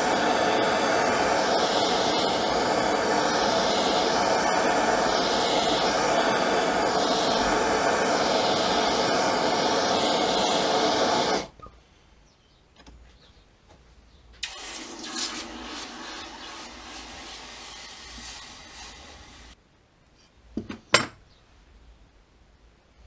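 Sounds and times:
gas blowtorch burning: 0:00.0 - 0:11.5, 0:14.4 - 0:19.6
hot steel hissing in water: 0:00.0 - 0:11.5, 0:14.4 - 0:19.6.

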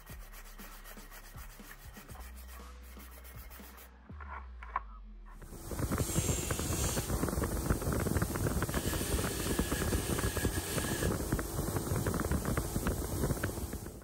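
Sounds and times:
bench grinder motor hum: 0:05.4 - 0:14.0.

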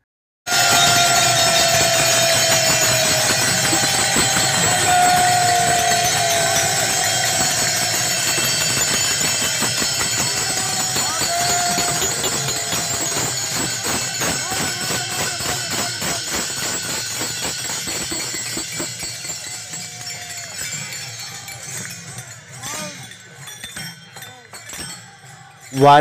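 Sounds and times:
crowd chanting long notes: 0:00.5 - 0:16.4
hand cymbals clashing: 0:00.5 - 0:26.0.

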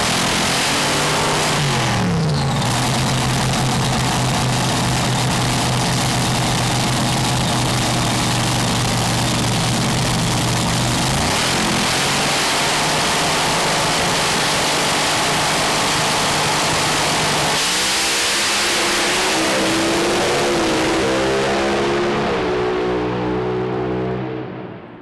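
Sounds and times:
dragster engine idling: 0:01.6 - 0:17.5.

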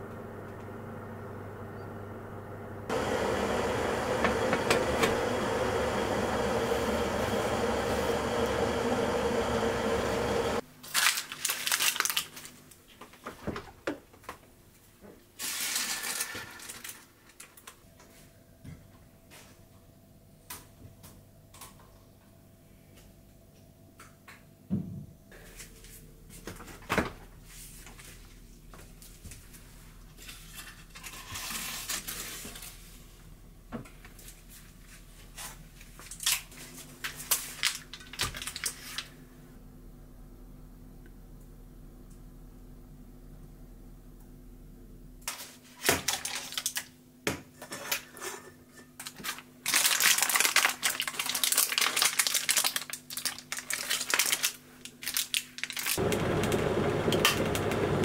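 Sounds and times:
steady hum: 0:02.7 - 0:10.6
parchment paper crinkling: 0:10.8 - 0:13.2, 0:35.4 - 0:39.2, 0:45.4 - 0:46.9, 0:49.0 - 0:56.2.

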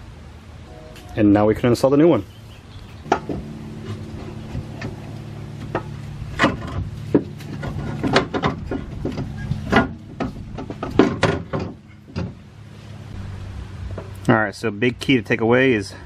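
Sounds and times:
steady low hum: 0:00.0 - 0:16.0
alternator clunking against engine parts: 0:02.8 - 0:13.1.

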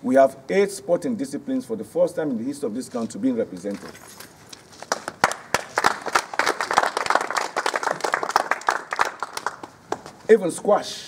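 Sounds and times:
crowd applauding: 0:04.9 - 0:10.1.

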